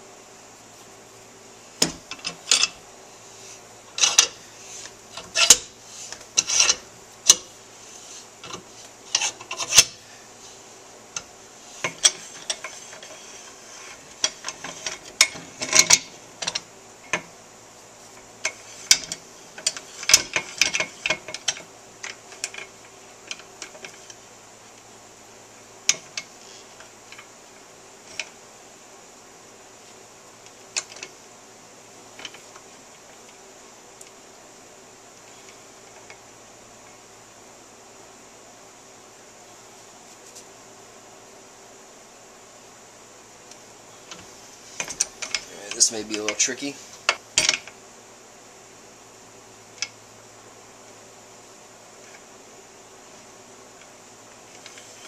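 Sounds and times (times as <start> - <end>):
metal scraping and clicking: 1.8 - 2.8, 3.9 - 7.5, 8.4 - 10.0, 11.2 - 17.2, 44.1 - 47.7, 54.5 - 55.0.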